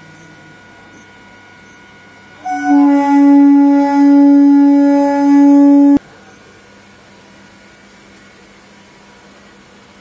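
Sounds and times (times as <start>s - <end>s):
train horn: 2.4s - 6.0s.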